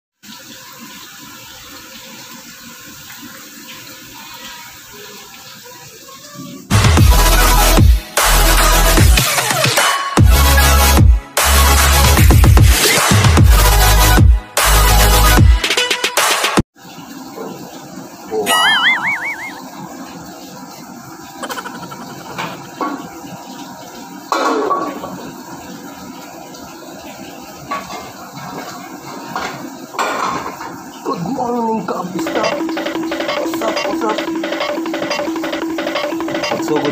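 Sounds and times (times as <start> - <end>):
food deep-frying in oil: 0.2 - 7.8
water splashing into metal pan: 18.4 - 20.4, 21.3 - 25.9, 27.5 - 31.0
metal pans knocking: 32.2 - 36.9.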